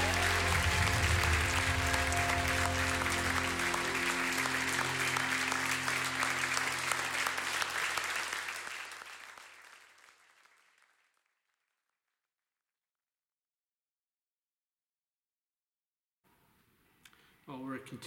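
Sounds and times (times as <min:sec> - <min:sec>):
held chord of worship song: 0:00.0 - 0:08.3
applause: 0:00.0 - 0:12.0.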